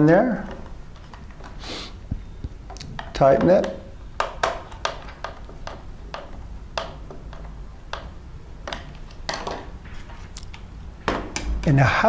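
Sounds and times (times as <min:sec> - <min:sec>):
screwdriver clicks and taps: 0:02.7 - 0:09.6.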